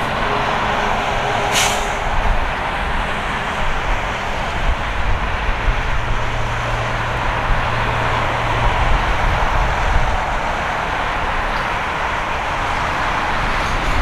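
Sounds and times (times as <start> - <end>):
jet engine roar: 0.0 - 5.0
wind buffeting microphone: 0.0 - 14.0.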